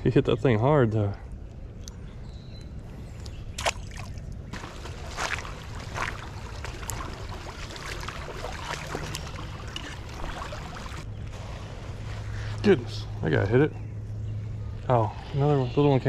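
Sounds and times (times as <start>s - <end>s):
wading through shallow water: 2.9s - 12.8s.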